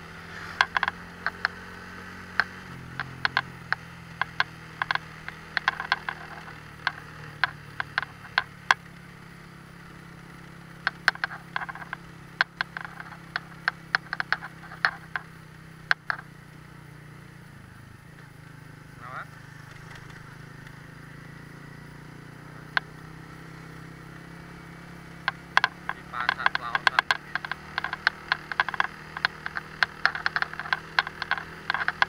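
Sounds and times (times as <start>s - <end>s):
motorcycle engine running: 0.0s - 32.0s
sharp clicks and rattles: 0.3s - 9.1s, 10.1s - 16.3s, 19.6s - 20.8s, 24.8s - 32.0s.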